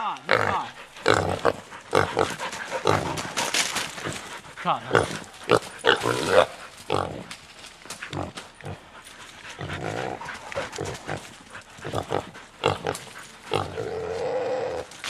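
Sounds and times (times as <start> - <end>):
hog squealing and grunting: 0.3 - 3.3, 4.0 - 7.3.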